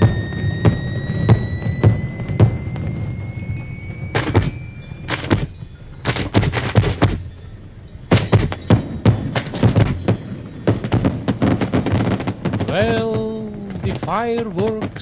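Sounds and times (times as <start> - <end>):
faint high thin tone: 0.0 - 5.8
fireworks banging: 0.0 - 15.0.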